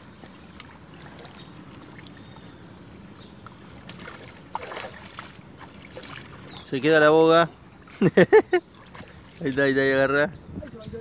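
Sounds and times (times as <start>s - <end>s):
water splashing and sloshing: 0.0s - 11.0s
wind rumble on microphone: 8.8s - 11.0s.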